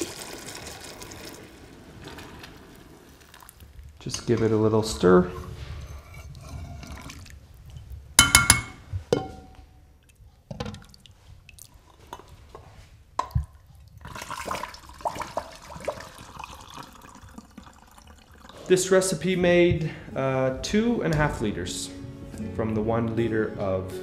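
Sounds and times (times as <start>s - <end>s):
metal spoon clinking glass bowl: 8.2s - 9.6s.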